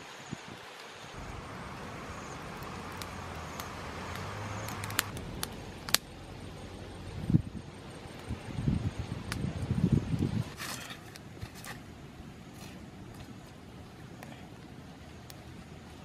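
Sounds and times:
campfire burning with pops: 0.6s - 16.0s.

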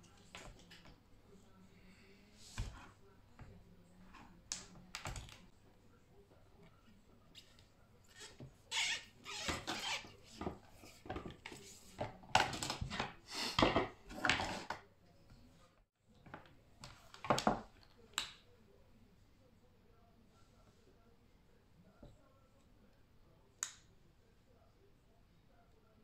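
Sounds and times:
cable sheath rubbing and scraping: 7.4s - 11.9s.

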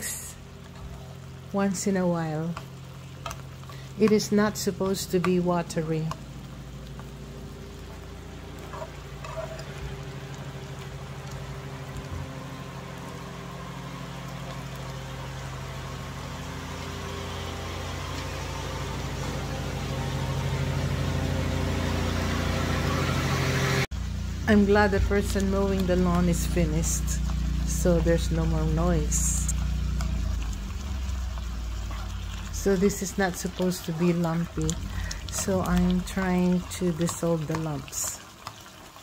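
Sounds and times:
lawn mower engine running: 6.0s - 32.8s.

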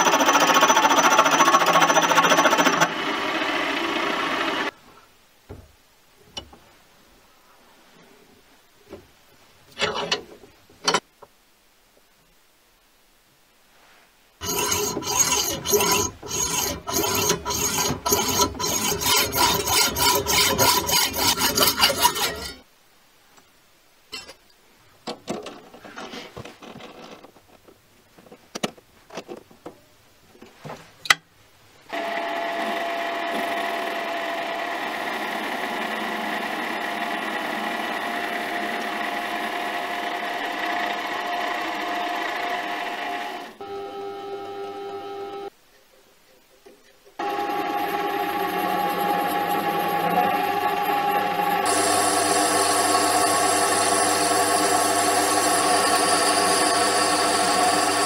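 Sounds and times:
mini lathe whining: 0.0s - 4.7s, 14.4s - 22.6s, 31.9s - 45.5s, 47.2s - 58.0s
hacksaw cutting brass rod: 14.4s - 22.6s.

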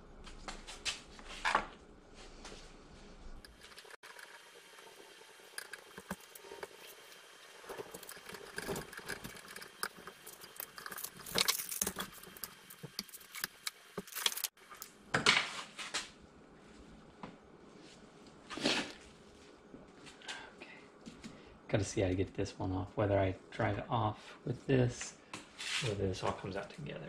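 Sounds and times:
metal gears clinking and rattling: 7.8s - 14.5s.

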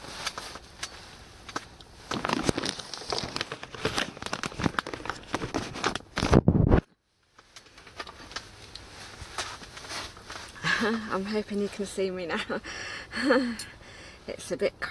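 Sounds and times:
camera rustling against clothing: 0.0s - 12.1s.

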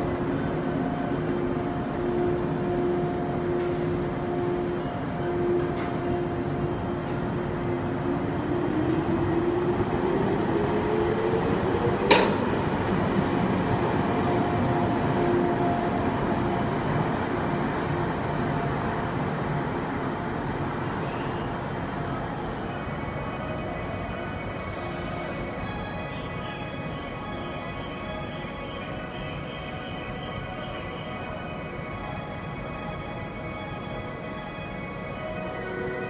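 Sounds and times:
train wheels rumbling on rails: 0.0s - 25.4s.

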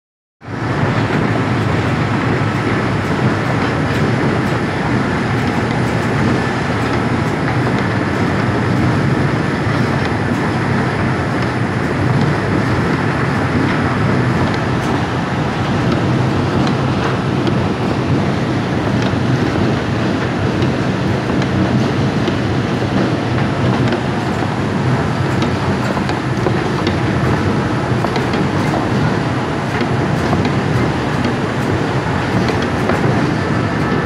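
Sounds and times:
machinery running: 0.5s - 34.0s.

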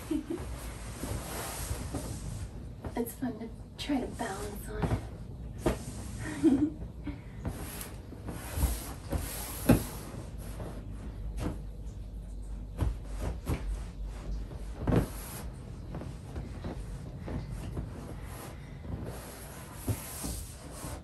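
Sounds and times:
sliding swishes: 0.0s - 3.0s.

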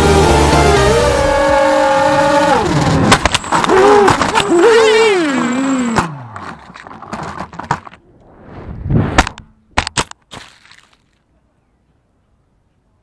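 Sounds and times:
background music: 0.0s - 2.8s
quadcopter motors whining: 0.9s - 3.1s, 3.7s - 6.0s.

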